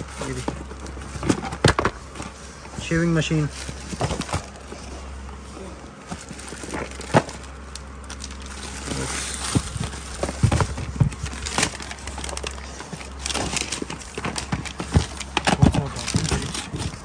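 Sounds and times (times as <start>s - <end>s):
plastic bags rustling: 0.0s - 17.0s
boxes knocking in cardboard carton: 9.5s - 11.8s, 13.4s - 17.0s.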